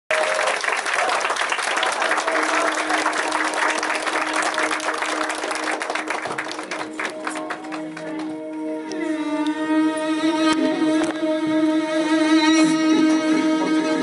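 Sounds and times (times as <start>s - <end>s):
audience clapping: 0.1s - 8.7s.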